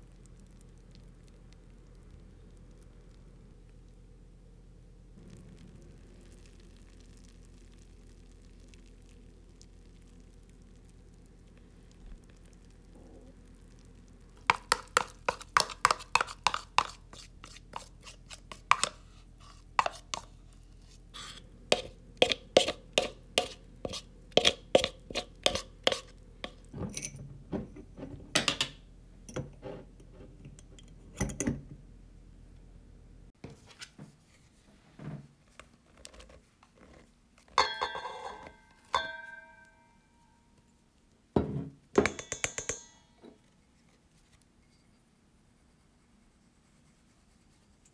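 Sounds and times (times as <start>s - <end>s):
spoon scraping a bowl: 14.5s - 27.2s, 42.0s - 43.9s.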